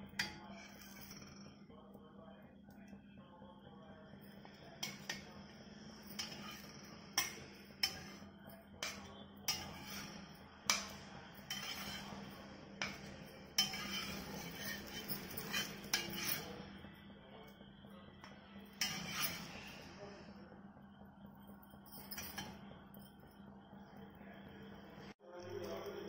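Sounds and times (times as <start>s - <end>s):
metal spatula scraping griddle: 0.1s - 1.5s, 4.8s - 16.7s, 18.7s - 19.9s.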